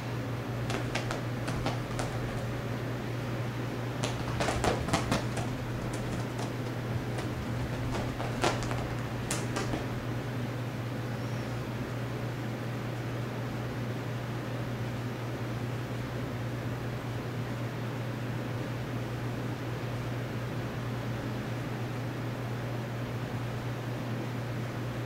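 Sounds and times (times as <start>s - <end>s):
cats scampering on floor: 0.6s - 2.7s, 3.9s - 10.4s.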